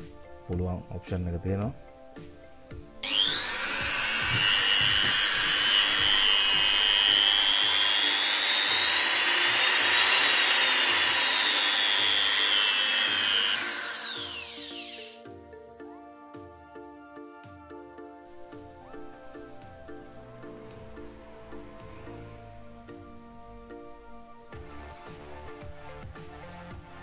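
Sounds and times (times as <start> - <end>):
rotary tool whine: 3.0 - 15.2.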